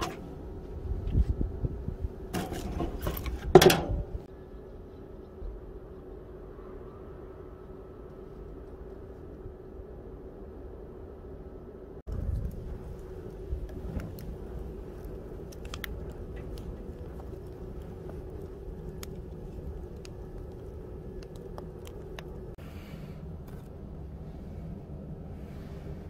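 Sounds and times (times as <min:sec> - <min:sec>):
low steady rumble: 0:00.0 - 0:26.0
firewood crackling and popping: 0:12.1 - 0:22.6.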